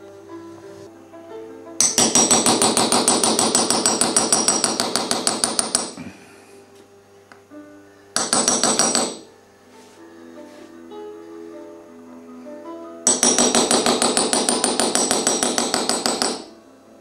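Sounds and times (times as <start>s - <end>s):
hammer tapping metal punch: 1.8s - 6.0s, 8.2s - 9.3s, 13.1s - 16.5s.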